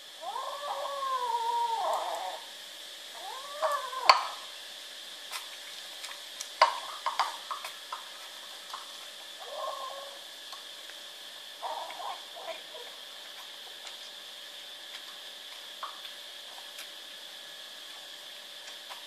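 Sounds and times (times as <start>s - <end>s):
kittens crying: 0.2s - 2.5s, 3.1s - 4.5s, 9.4s - 10.3s, 11.6s - 12.9s.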